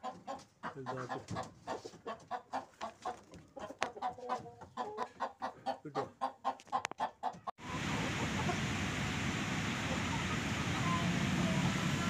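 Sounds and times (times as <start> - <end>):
chicken clucking: 0.0 - 8.6.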